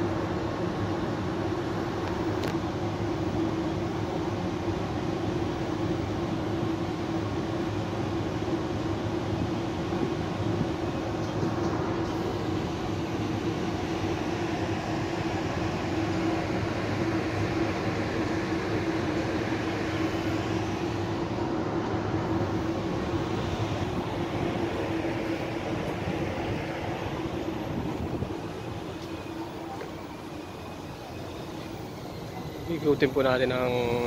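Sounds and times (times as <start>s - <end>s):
ventilation and machinery hum: 0.0s - 34.0s.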